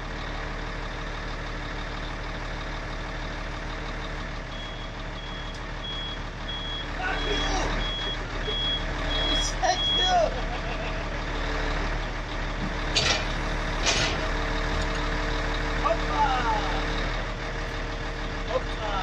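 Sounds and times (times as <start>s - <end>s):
lorry engine running: 0.0s - 19.0s
high warning beeper: 4.6s - 10.2s
short metal clank: 12.9s - 14.3s.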